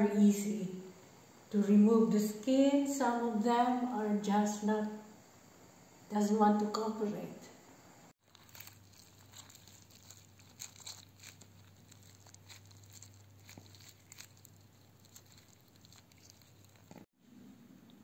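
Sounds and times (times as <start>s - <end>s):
faint low hum: 0.0s - 18.0s
pepper skin tearing and crinkling: 8.2s - 17.1s.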